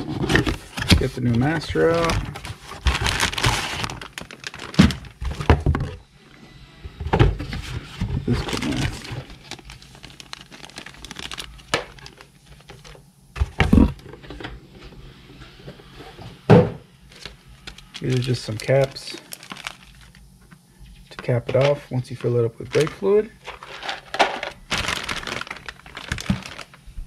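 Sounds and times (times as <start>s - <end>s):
plastic bag crinkling: 0.0s - 5.5s, 8.3s - 13.0s, 17.1s - 20.3s, 22.1s - 27.0s.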